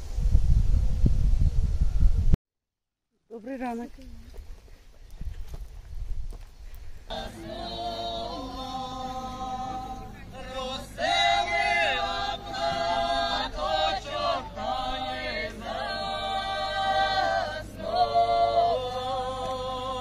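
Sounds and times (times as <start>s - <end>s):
group singing a cappella: 7.1s - 20.0s.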